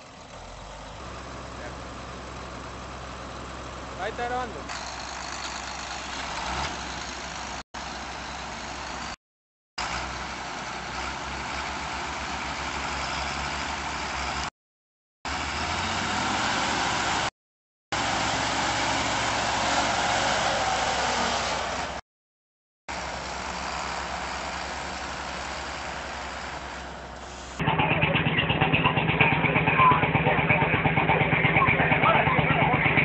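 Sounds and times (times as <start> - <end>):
tractor diesel engine straining: 0.0 - 9.2, 9.8 - 14.5, 22.9 - 33.0.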